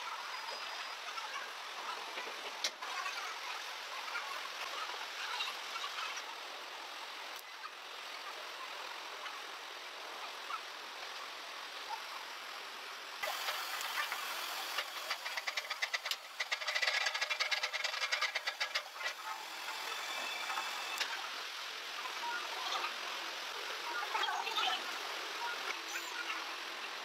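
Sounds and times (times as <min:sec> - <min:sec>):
flowing water rushing: 0:13.2 - 0:15.6
fast mechanical clatter: 0:13.2 - 0:21.0.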